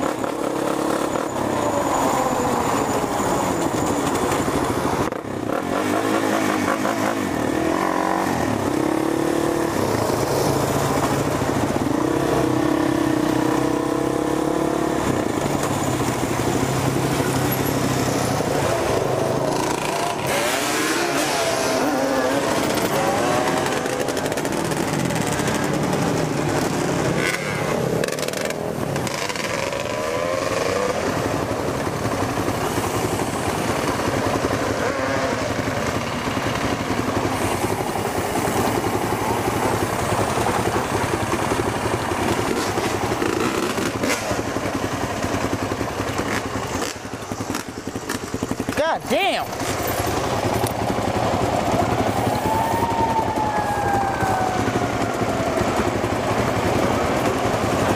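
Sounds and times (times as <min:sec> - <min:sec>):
quad bike engine revving: 0:00.0 - 0:57.9.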